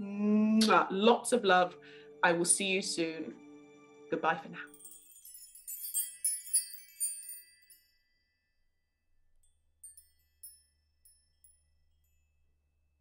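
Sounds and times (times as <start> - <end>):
bell-like chiming music: 3.3 - 8.6, 9.5 - 12.3.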